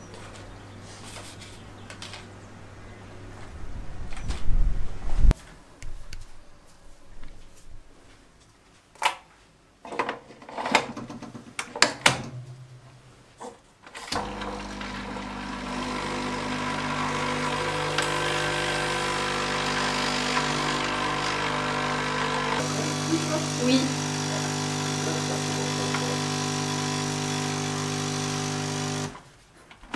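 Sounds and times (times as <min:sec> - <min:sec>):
coffee machine pump humming: 0:14.2 - 0:29.2.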